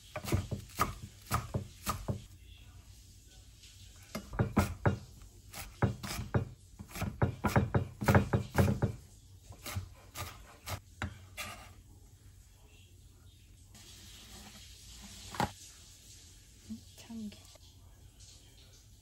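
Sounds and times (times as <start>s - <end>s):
knife chopping on wooden board: 0.1s - 2.3s, 4.2s - 9.0s, 9.6s - 11.6s.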